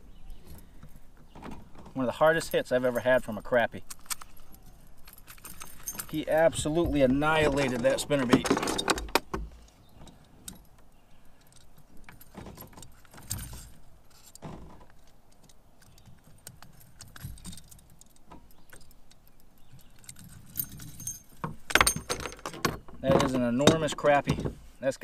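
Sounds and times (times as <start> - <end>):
metallic clinking of pliers: 16.9 - 22.5.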